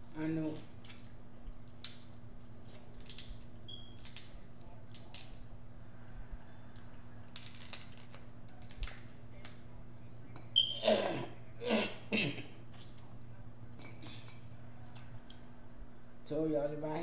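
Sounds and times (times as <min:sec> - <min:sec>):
steady low hum: 0:00.0 - 0:17.0
crab shells cracking: 0:00.5 - 0:05.5, 0:06.7 - 0:09.6.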